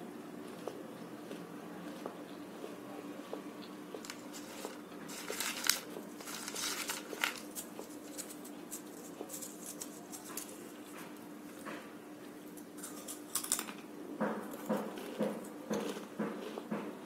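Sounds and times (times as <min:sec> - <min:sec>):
steady background hum: 0:00.0 - 0:17.0
crunchy snack being chewed: 0:03.6 - 0:10.9, 0:14.5 - 0:16.8.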